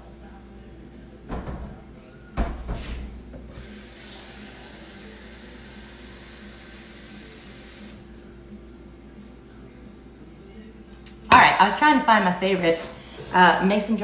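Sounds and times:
tap water running into a glass: 0:03.5 - 0:08.0.

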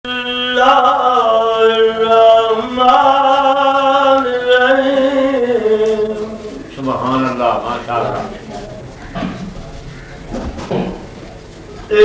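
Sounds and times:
man chanting: 0:00.1 - 0:09.0.

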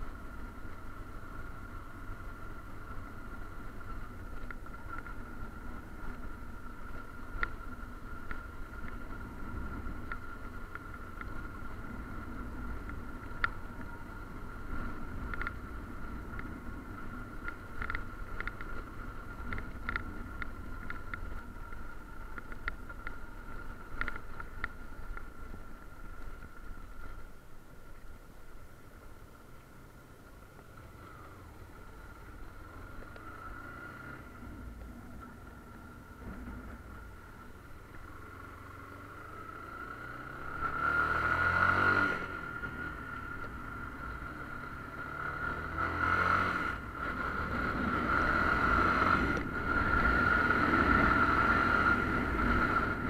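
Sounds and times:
motorcycle engine and tyre rumble: 0:00.0 - 0:53.0
rattles and clicks: 0:14.8 - 0:28.2.

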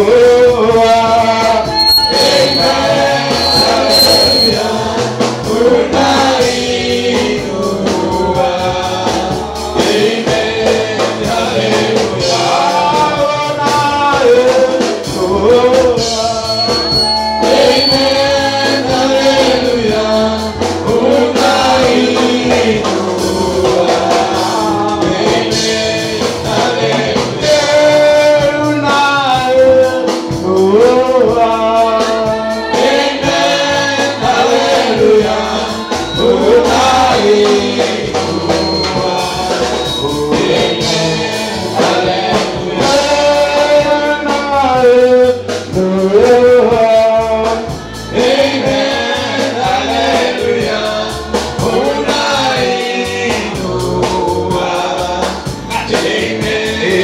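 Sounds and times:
gospel song with voices singing: 0:00.0 - 0:57.0.

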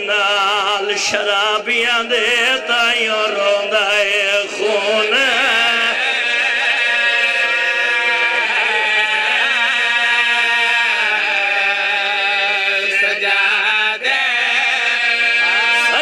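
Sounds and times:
men singing a lament: 0:00.0 - 0:16.0.

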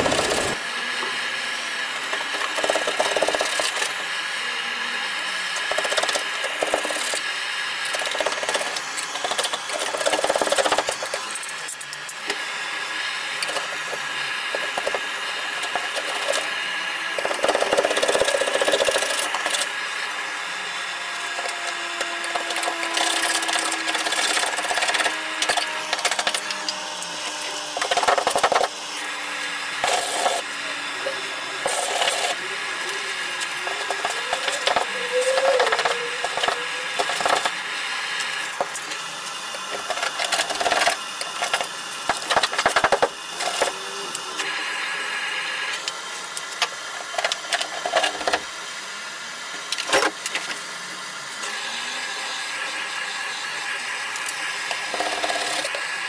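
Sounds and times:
blowtorch hissing: 0:00.0 - 0:47.3, 0:50.3 - 0:56.0.

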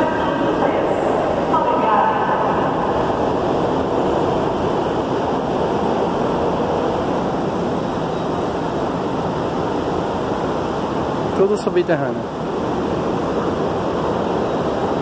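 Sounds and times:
ventilation air rushing: 0:00.0 - 0:15.0.

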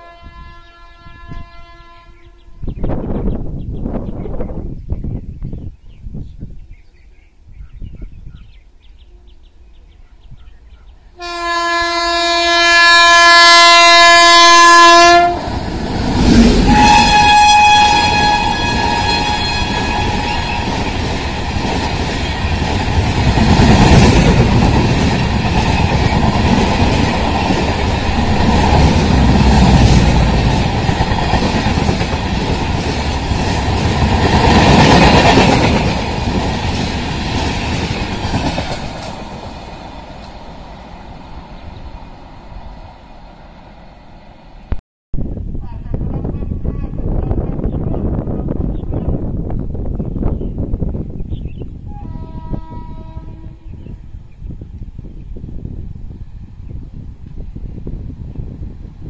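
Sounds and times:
train horn blast: 0:00.0 - 0:02.7, 0:11.2 - 0:15.6, 0:16.5 - 0:20.7, 0:51.9 - 0:54.0
train coaches rumbling: 0:09.3 - 0:44.8.

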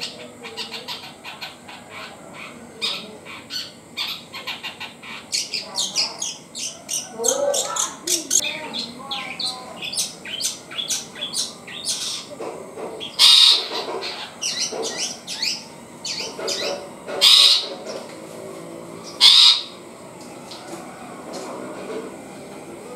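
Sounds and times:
bird soft twittering: 0:00.0 - 0:12.3
bird harsh squawks: 0:00.0 - 0:12.4, 0:13.0 - 0:17.9, 0:19.1 - 0:19.9
bird chirping: 0:00.0 - 0:18.1, 0:19.0 - 0:19.9.

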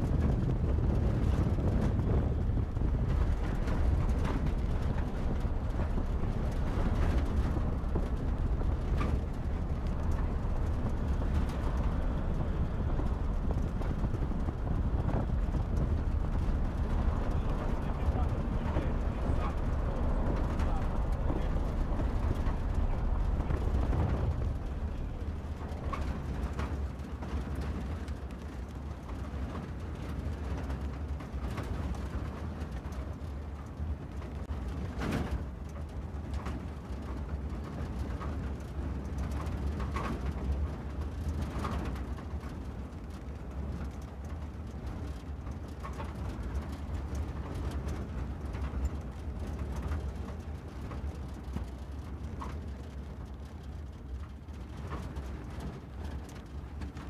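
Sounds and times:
car engine and tyres rumbling: 0:00.0 - 0:57.0.

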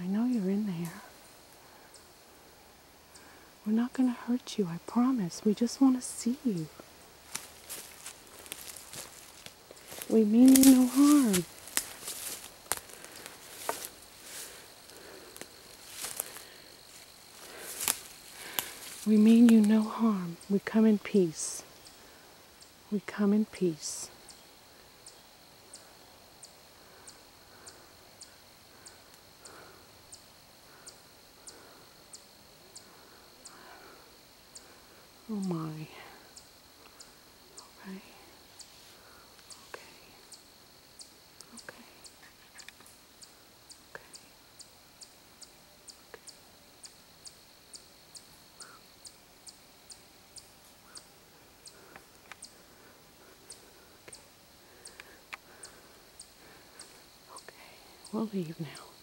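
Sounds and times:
insect chirping: 0:00.0 - 0:59.0
faint sharp clicks: 0:41.4 - 0:43.0, 0:51.9 - 0:52.6, 0:54.8 - 0:55.5.

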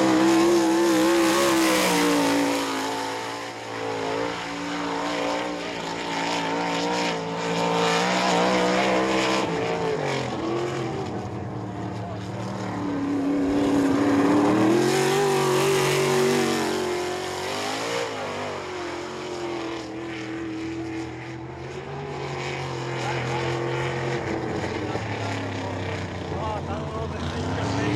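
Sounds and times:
race car engine running hard: 0:00.0 - 0:27.9.

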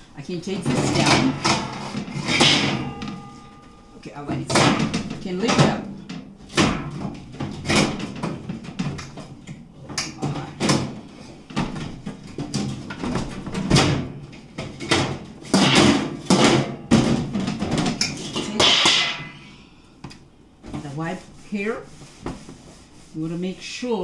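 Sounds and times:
cloth wiping oven: 0:20.7 - 0:24.0.

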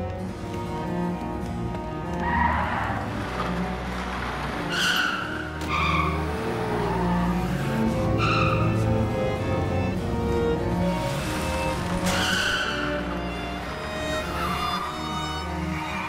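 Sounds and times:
car tyres squealing: 0:02.1 - 0:09.1, 0:11.1 - 0:13.3.

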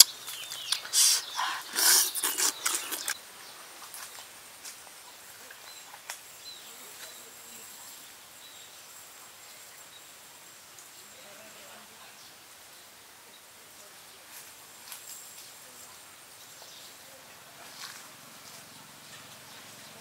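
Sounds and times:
man chewing and sucking: 0:00.0 - 0:03.2
bird chirps: 0:00.0 - 0:04.2.

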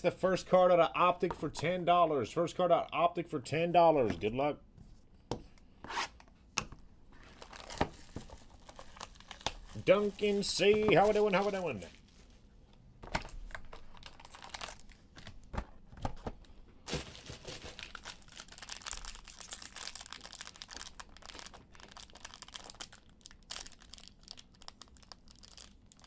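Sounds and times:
foil pack crinkling and tearing: 0:07.2 - 0:12.4, 0:13.2 - 0:15.5, 0:16.9 - 0:26.0.

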